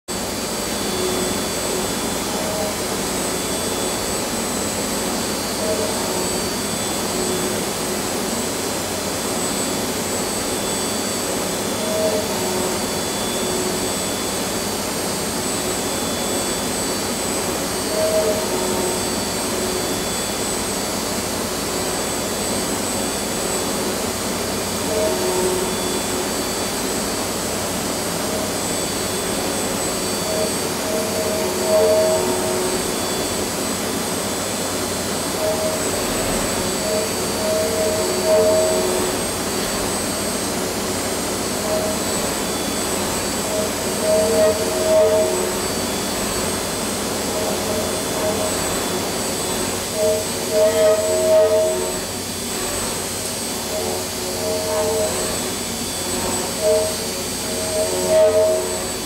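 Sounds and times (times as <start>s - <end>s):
milling machine spindle cutting: 24.6s - 59.0s.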